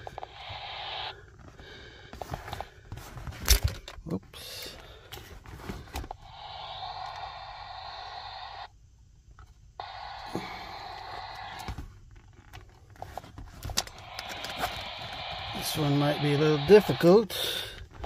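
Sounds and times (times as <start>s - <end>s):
radio static hiss: 0.0s - 1.8s, 5.8s - 8.8s, 9.7s - 12.0s, 13.6s - 18.0s.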